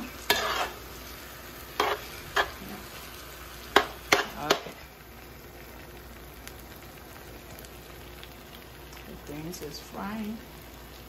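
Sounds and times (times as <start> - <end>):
spoon scraping pot: 0.0 - 0.8, 1.7 - 2.8
greens sizzling in oil: 0.0 - 11.0.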